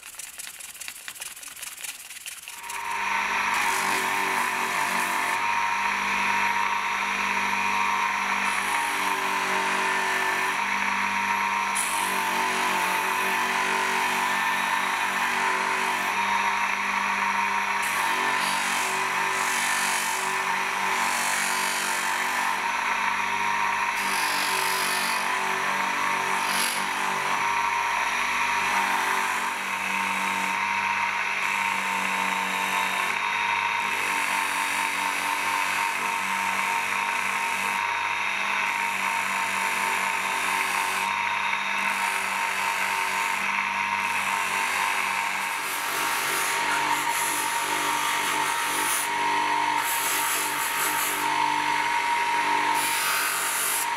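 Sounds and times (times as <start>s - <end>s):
bench polisher motor hum: 1.6s - 53.9s.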